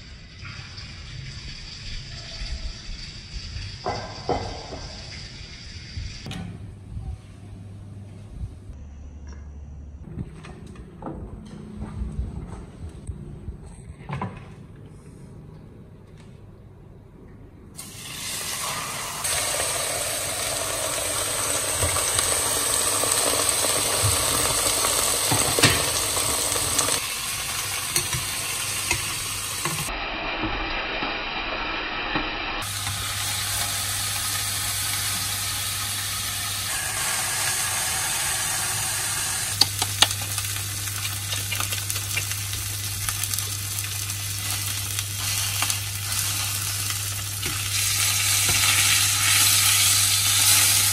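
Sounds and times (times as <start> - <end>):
food sizzling in a frying pan: 17.8 - 50.9
utensil clicking against pan: 39.6 - 40.3, 41.0 - 42.4.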